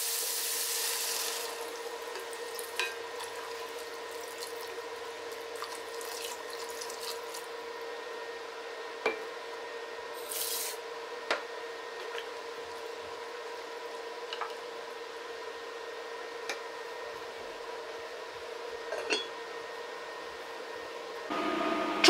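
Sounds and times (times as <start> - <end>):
water pouring into a pot: 5.6 - 7.4.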